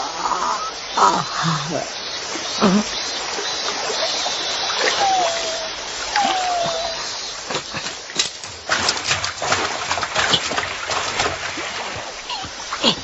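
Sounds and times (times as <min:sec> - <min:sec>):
river water splashing: 0:00.8 - 0:13.0
downward gliding call: 0:04.7 - 0:07.2.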